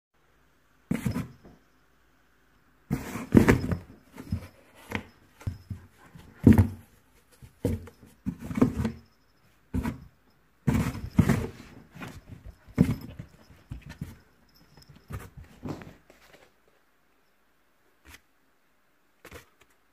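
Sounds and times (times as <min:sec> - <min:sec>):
cardboard boxes thumped and scratched: 0:00.9 - 0:01.3, 0:02.9 - 0:09.0, 0:09.8 - 0:10.1, 0:10.7 - 0:14.2.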